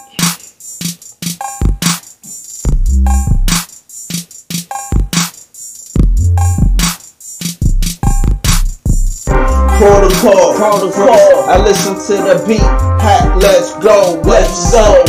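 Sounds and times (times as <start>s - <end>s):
drum machine beat: 0.0s - 15.0s
synth stabs: 9.3s - 15.0s.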